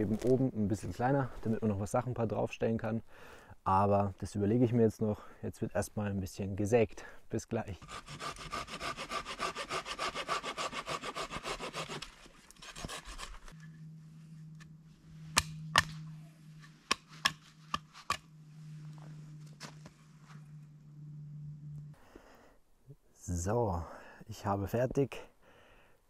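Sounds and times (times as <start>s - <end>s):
hand saw cutting wood: 7.8s - 13.6s
steady low hum: 13.0s - 24.2s.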